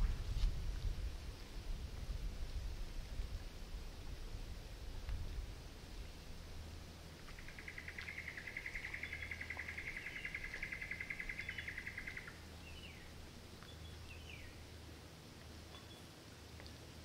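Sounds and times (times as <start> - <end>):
faint low rumble: 0.0 - 17.0.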